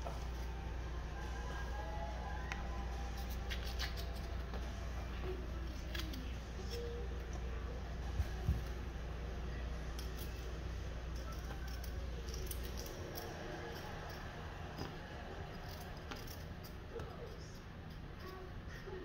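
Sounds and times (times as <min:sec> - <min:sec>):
low hum: 0:00.0 - 0:19.0
knife scraping potato: 0:03.1 - 0:04.6, 0:10.0 - 0:18.8.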